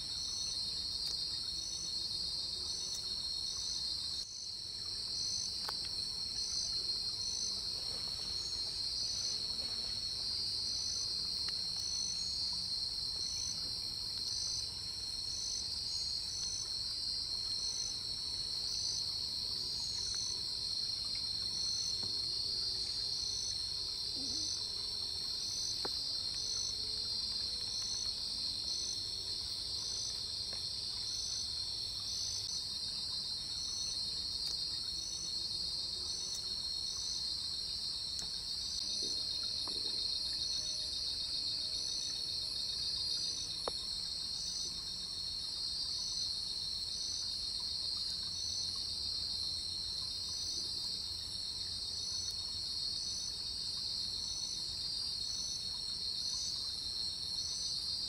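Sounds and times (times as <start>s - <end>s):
crickets and insects trilling: 0.0s - 58.0s.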